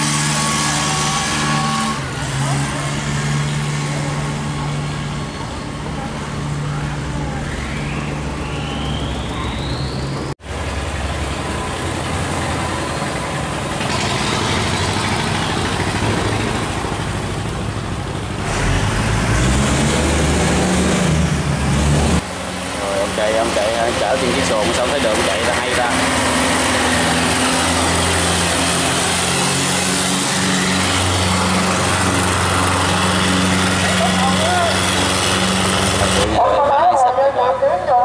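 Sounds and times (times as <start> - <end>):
boat engines running: 0.0 - 38.0
rising whine: 0.6 - 15.1.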